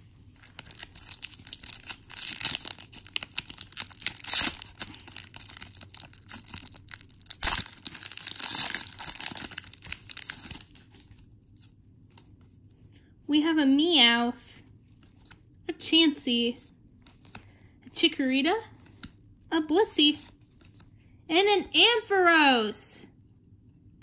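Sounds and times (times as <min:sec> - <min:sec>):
foil wrapper ripping: 0:00.3 - 0:11.1
foil wrapper crinkling: 0:00.3 - 0:11.7.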